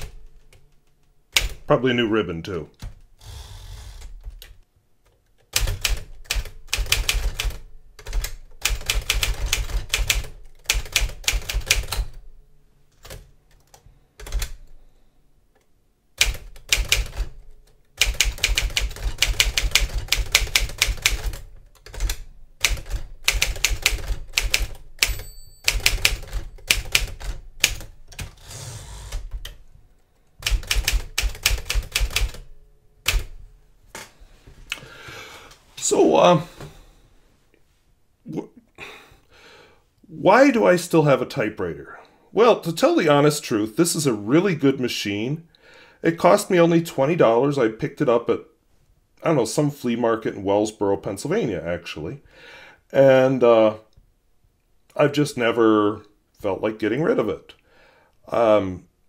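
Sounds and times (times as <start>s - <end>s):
typewriter keystrokes: 1.3s - 1.7s, 5.4s - 12.2s, 16.2s - 17.4s, 18.0s - 28.4s, 30.4s - 33.4s
typewriter bell ringing: 25.0s - 27.2s.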